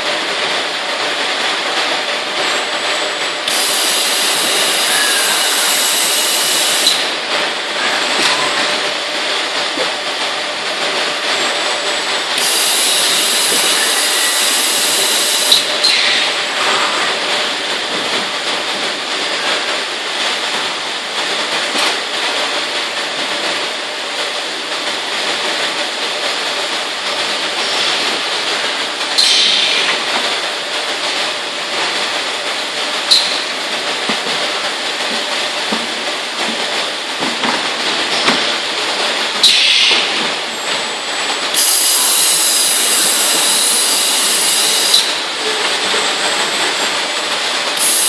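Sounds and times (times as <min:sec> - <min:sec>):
robot palletizer running: 0:00.0 - 0:22.7, 0:40.3 - 0:48.0
roller conveyors running: 0:00.0 - 0:48.0
hiss: 0:03.5 - 0:07.0, 0:12.4 - 0:16.2, 0:39.4 - 0:40.1, 0:41.6 - 0:45.2, 0:47.8 - 0:48.0.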